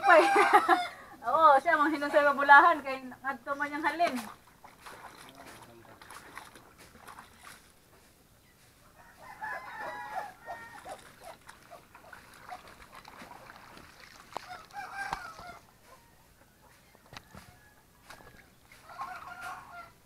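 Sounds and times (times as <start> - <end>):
rooster crowing: 0.0 - 1.1, 8.9 - 11.0, 14.4 - 20.0
water splashing in basin: 3.8 - 7.8, 10.4 - 15.6, 18.0 - 19.8.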